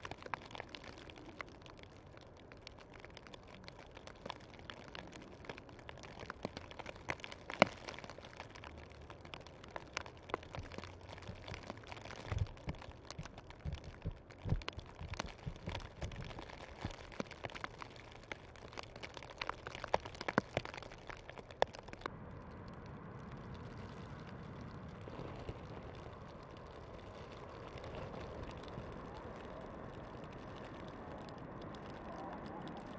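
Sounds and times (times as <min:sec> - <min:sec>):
light ticks and clicks: 0:00.0 - 0:24.3
steady low rumble: 0:10.3 - 0:16.5
dull low thumps: 0:12.3 - 0:16.4.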